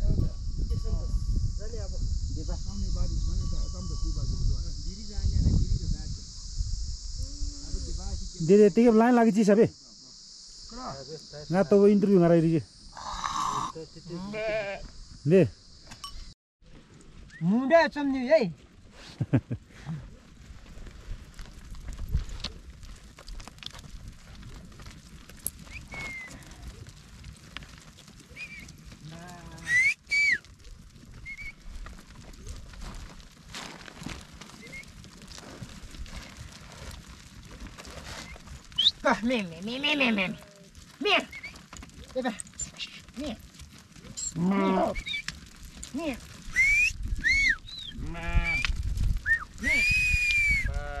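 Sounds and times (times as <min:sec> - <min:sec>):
sheep and goats bleating: 0:13.4 - 0:14.9, 0:29.0 - 0:29.8, 0:39.0 - 0:41.6, 0:44.1 - 0:45.2, 0:47.8 - 0:48.7, 0:50.7 - 0:51.0
flock shuffling over rocky ground: 0:16.6 - 0:51.0
sharp herding whistles: 0:25.6 - 0:26.4, 0:28.3 - 0:28.8, 0:29.6 - 0:30.5, 0:31.1 - 0:31.6, 0:34.6 - 0:35.0, 0:38.2 - 0:39.1, 0:41.2 - 0:41.7, 0:44.2 - 0:45.4, 0:46.5 - 0:50.8.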